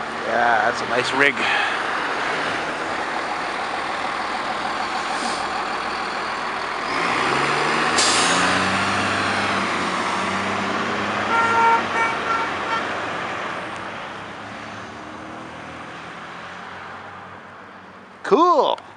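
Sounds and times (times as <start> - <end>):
fire truck diesel engine running: 0.0 - 14.5
air brakes hissing: 4.9 - 6.3, 7.9 - 8.6.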